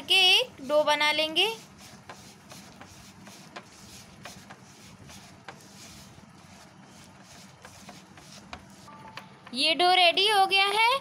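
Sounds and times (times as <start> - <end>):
fingers rubbing dough: 0.7 - 8.9.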